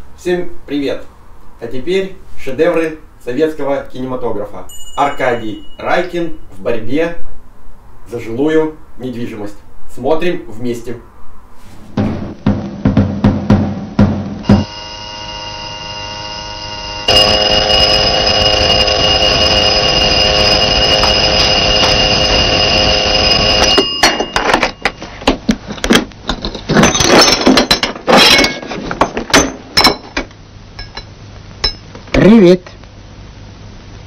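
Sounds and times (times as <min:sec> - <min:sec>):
electric doorbell ringing: 0:04.7 - 0:06.2, 0:14.5 - 0:25.0.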